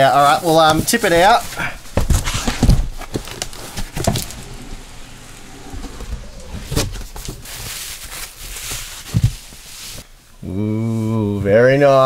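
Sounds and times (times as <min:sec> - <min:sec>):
bubble wrap rustling: 0:00.0 - 0:10.1
dull knocks of cardboard boxes: 0:00.8 - 0:04.6.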